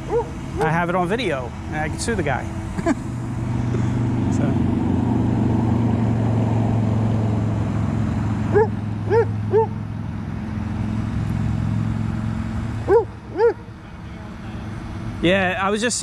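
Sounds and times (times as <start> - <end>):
steady low hum: 0.0 - 15.7
dog barking: 0.1 - 0.7, 8.5 - 9.7, 12.9 - 13.7.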